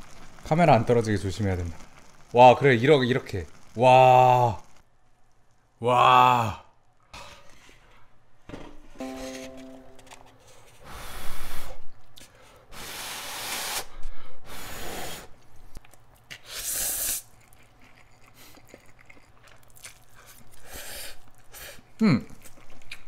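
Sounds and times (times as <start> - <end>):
person slurping noodles: 12.7 - 13.9, 14.5 - 15.3, 16.3 - 17.5
chewing: 17.2 - 23.0.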